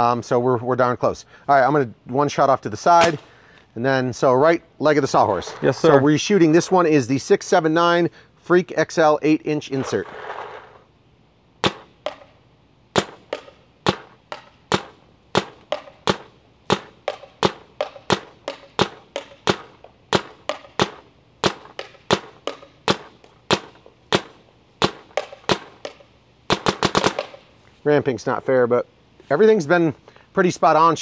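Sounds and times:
paintball marker firing: 3.0 - 3.3, 11.6 - 12.4, 13.0 - 27.5.

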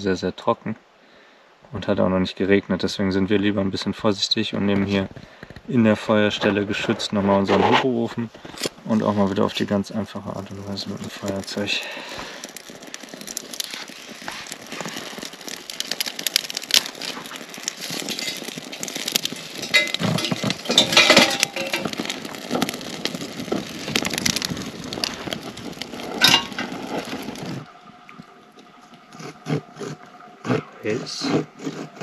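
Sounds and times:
wood fire crackling: 0.6 - 32.0
sticks clattering in stove: 14.4 - 27.0.

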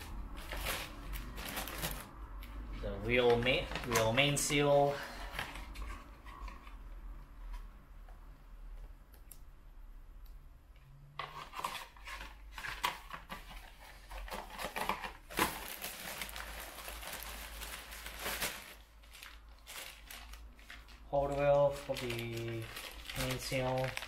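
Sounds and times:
plastic bag crinkling: 0.0 - 6.0, 14.1 - 24.0.

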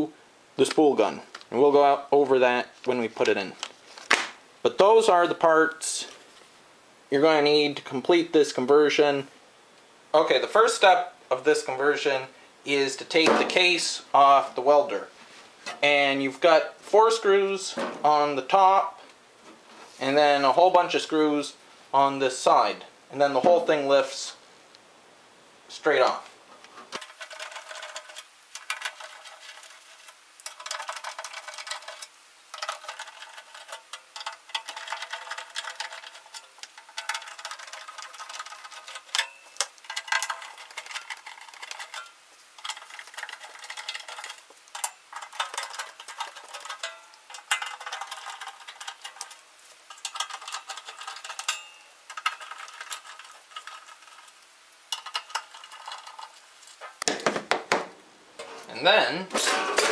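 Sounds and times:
screwdriver scraping and clicking metal: 27.0 - 56.4.

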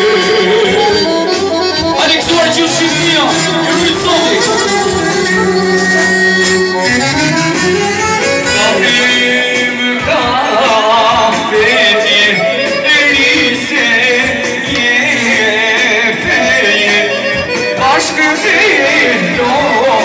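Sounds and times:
violin-like melody: 0.0 - 9.9
accordion: 0.0 - 20.0
man singing: 0.0 - 20.0.

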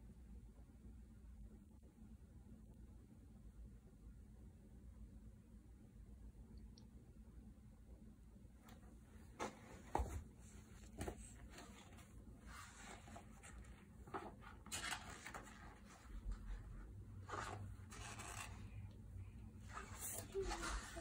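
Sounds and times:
book pages rustling: 8.7 - 18.8, 19.6 - 21.0.

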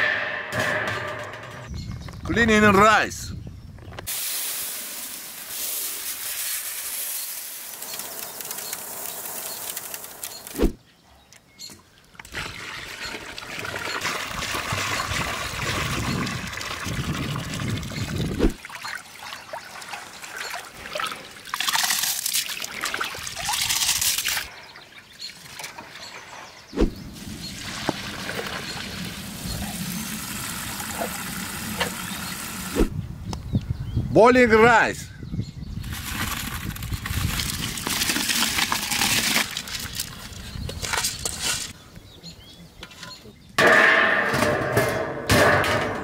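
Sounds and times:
rice pouring into water: 4.1 - 10.2
water pouring: 4.1 - 10.6, 12.2 - 24.5, 27.2 - 32.8, 35.9 - 40.4
water splashing and trickling: 4.1 - 10.8, 11.9 - 32.9, 35.8 - 41.8.

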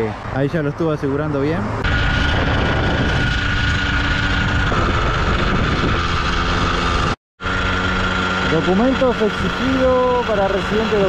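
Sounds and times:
wind noise on microphone: 1.8 - 8.4
motorcycle engine running: 1.8 - 11.0.

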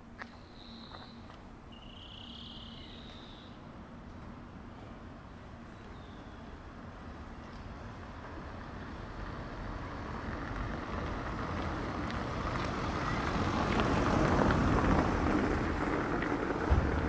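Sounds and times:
vehicle tyres hissing on wet street: 6.0 - 17.0.

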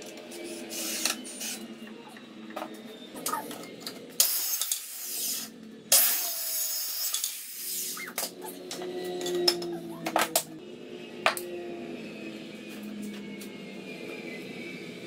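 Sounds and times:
circular saw cutting wood: 0.0 - 10.6.

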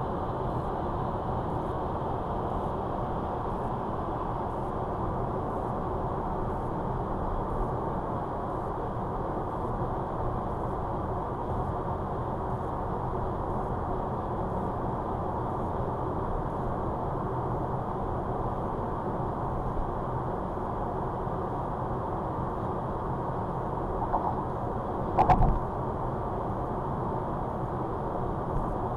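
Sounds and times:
road and tyre noise: 0.0 - 28.9
car engine hum: 23.8 - 26.0.

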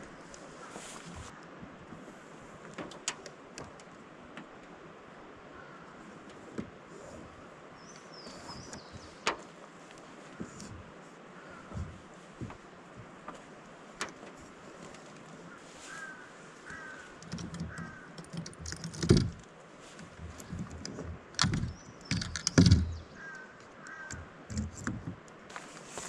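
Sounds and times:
bird calls: 7.8 - 9.4, 15.4 - 19.0, 21.5 - 24.4.

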